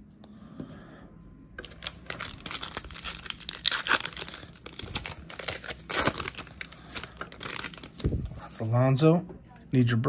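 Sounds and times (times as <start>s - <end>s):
foil wrapper tearing and crinkling: 1.6s - 8.1s.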